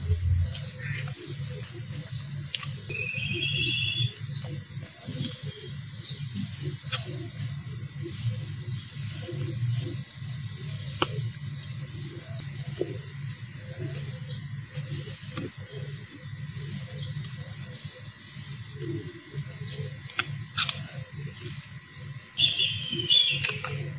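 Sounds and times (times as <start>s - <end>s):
sharp clicks: 22.8s - 23.8s.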